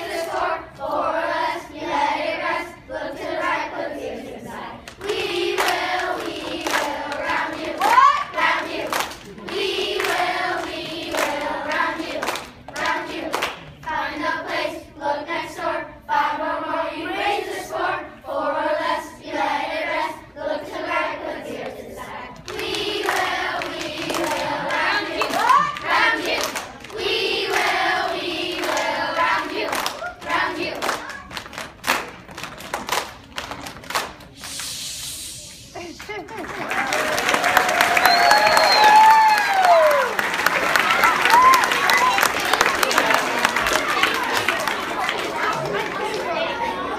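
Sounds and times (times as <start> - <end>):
children singing: 0.0 - 30.8
hands clapping: 4.9 - 8.1, 8.9 - 13.7, 22.4 - 27.8, 28.6 - 28.9, 29.5 - 34.8, 36.0 - 46.4.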